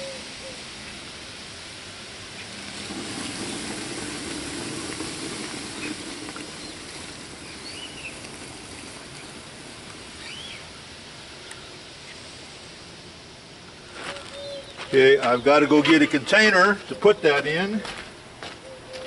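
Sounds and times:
hissing fizz of bubbling slurry: 0.2s - 13.9s
liquid pouring into a plastic bucket: 2.3s - 10.5s.

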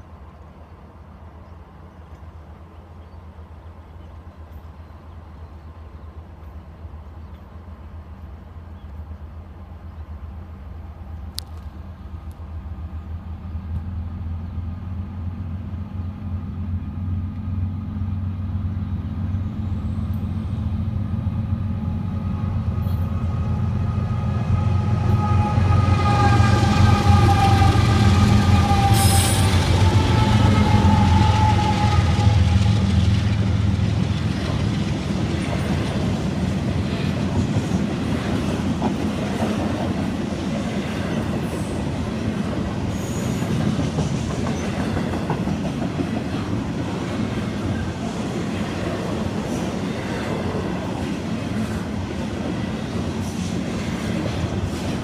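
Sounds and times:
diesel locomotive rumble: 0.0s - 55.0s
locomotive horn chord: 23.8s - 32.8s.

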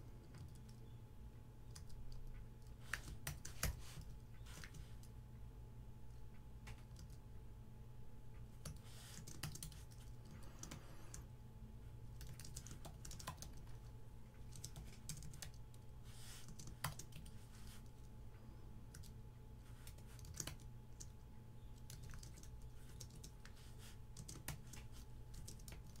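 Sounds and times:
keyboard typing: 0.2s - 0.8s, 1.6s - 5.1s, 6.6s - 7.2s, 8.6s - 11.2s, 12.2s - 18.1s, 18.9s - 21.2s, 21.8s - 26.0s.

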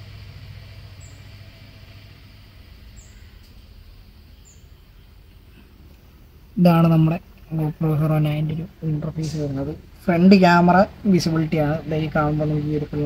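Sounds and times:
steady low hum: 0.0s - 13.0s
small bird chirping: 0.9s - 1.4s, 2.9s - 5.7s.

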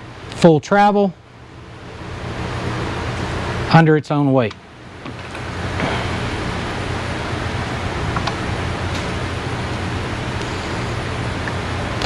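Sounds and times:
machine hum: 0.0s - 12.0s
rushing air: 5.4s - 12.0s.

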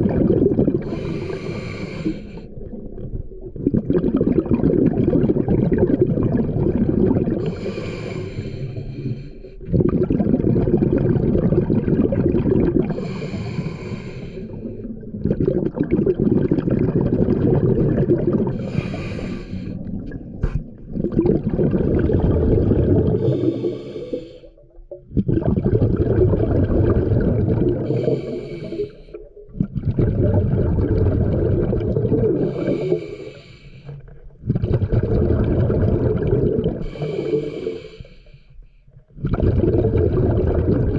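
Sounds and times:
exhaust bubbles rumbling underwater: 0.0s - 38.3s, 39.0s - 40.9s
scuba regulator inhale hiss: 0.9s - 2.5s, 7.5s - 9.5s, 12.9s - 14.8s, 18.6s - 19.8s, 23.2s - 24.6s, 27.9s - 29.2s, 32.4s - 34.0s, 36.8s - 38.6s.

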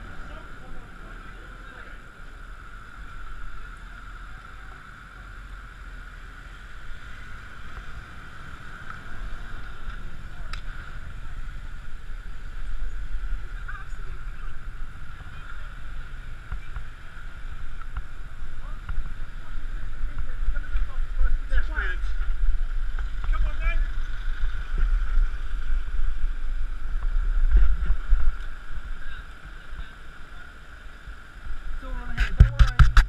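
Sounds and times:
wind buffeting microphone: 6.9s - 29.9s.

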